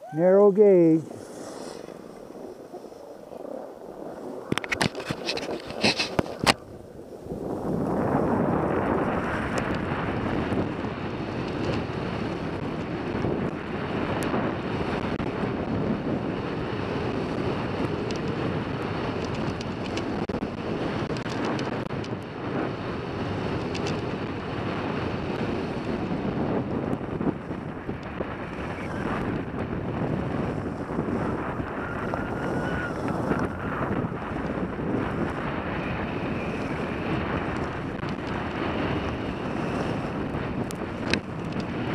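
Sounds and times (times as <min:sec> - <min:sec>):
wind rushing over microphone: 0:00.0 - 0:41.9
skis scraping on packed snow: 0:00.5 - 0:12.6, 0:28.2 - 0:41.9.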